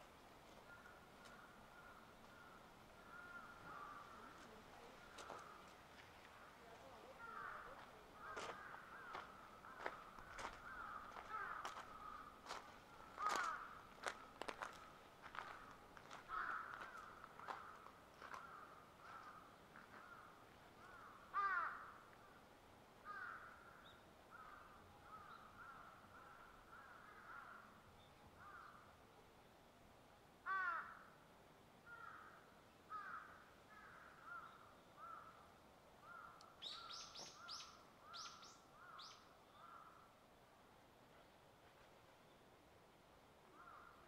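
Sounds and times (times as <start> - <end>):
bird calling: 36.0 - 39.9.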